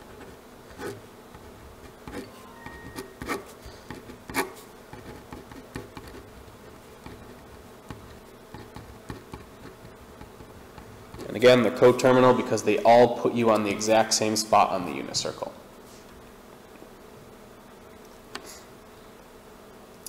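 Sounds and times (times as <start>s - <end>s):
marker pen squeaking on paper: 0.0s - 11.4s.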